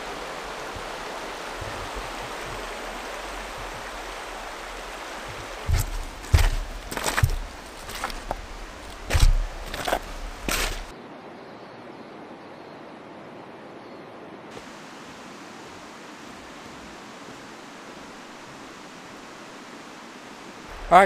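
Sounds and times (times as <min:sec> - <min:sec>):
flowing river water: 0:00.0 - 0:11.0, 0:14.2 - 0:21.0
knocks against river stones: 0:05.7 - 0:10.9.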